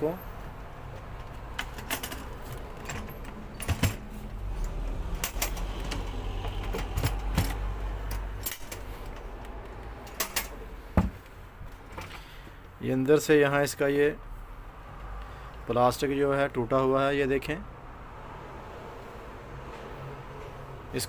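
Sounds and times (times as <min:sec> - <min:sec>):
plastic and metal clicks and knocks: 0:05.2 - 0:11.3.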